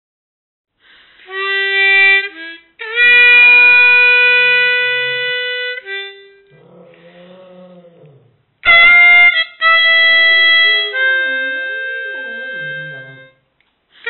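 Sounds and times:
harmonica playing held notes: 1.3s - 6.6s, 8.6s - 13.4s.

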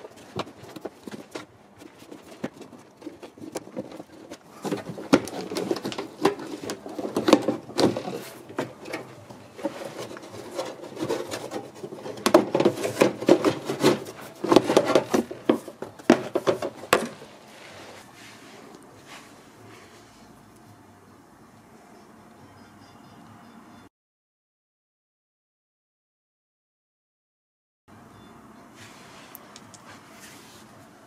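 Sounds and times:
plastic rubbing and scraping: 0.0s - 20.3s.

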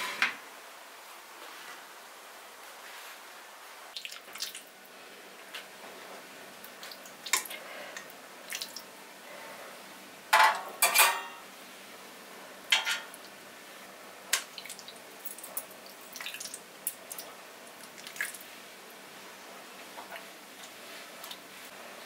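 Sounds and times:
dishes and utensils clinking: 10.4s - 11.4s, 12.7s - 13.2s.

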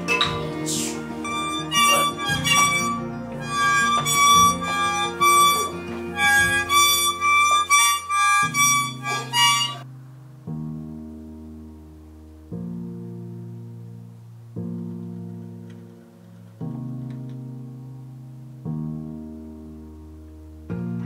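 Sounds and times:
soft low musical notes: 0.0s - 21.0s
child blowing harmonica: 1.2s - 9.8s.

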